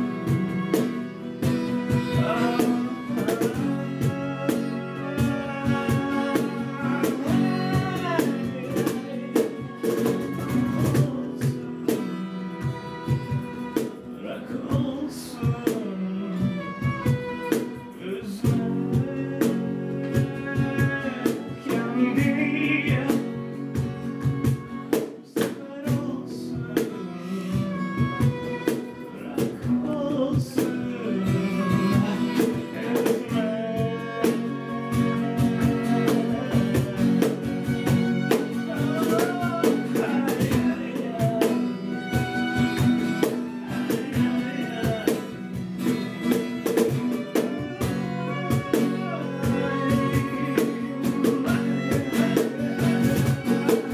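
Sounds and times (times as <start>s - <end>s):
cajon strikes: 0.0s - 15.9s, 16.5s - 27.0s, 27.6s - 53.9s
acoustic guitar: 0.0s - 53.9s
bowed violin melody: 0.0s - 53.9s.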